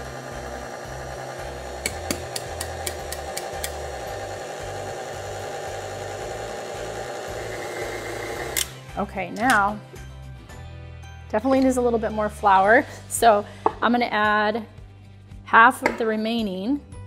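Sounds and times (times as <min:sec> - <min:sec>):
stand mixer running: 0:00.0 - 0:08.8.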